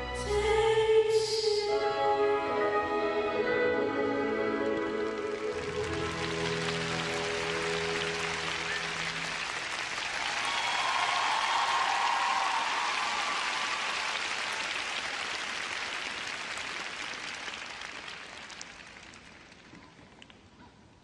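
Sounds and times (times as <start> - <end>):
audience applauding: 4.8 - 20.3.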